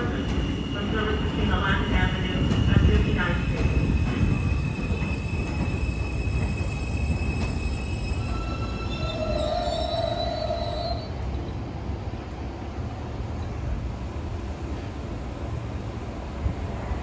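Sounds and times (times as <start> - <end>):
trains rumbling on elevated tracks: 0.0 - 17.0
steel wheels squealing: 3.9 - 11.1.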